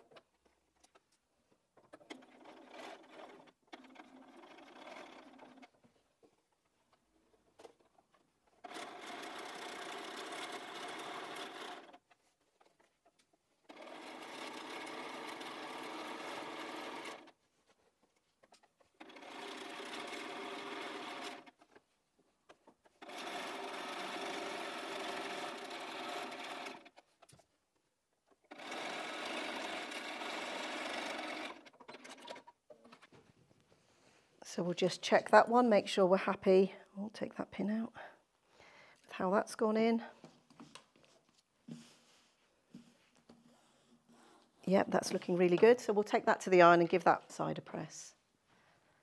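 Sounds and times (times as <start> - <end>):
sewing machine stitching: 1.8 - 6.4, 7.4 - 17.4, 18.1 - 21.9, 22.5 - 27.4, 28.4 - 33.1.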